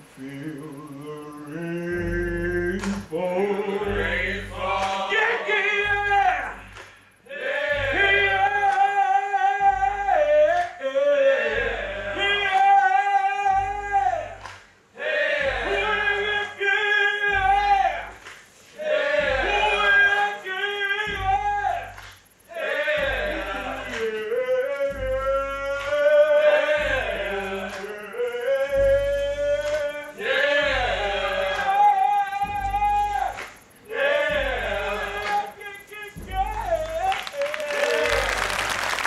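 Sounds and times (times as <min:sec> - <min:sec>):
men singing in harmony: 0:00.0 - 0:14.4, 0:15.0 - 0:38.5
low regular beat: 0:00.0 - 0:39.0.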